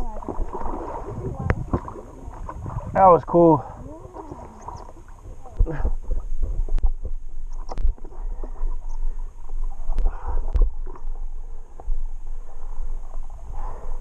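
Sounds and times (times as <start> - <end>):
paddle knocks and splashes: 0.0 - 3.0
steady low rumble: 0.0 - 14.0.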